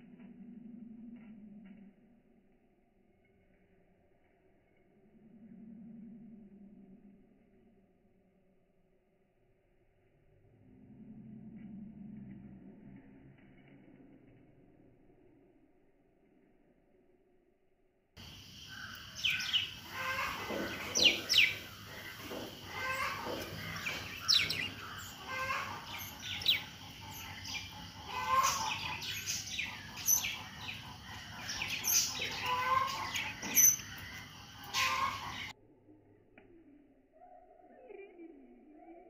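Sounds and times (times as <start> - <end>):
budgerigars chattering: 18.7 - 33.8.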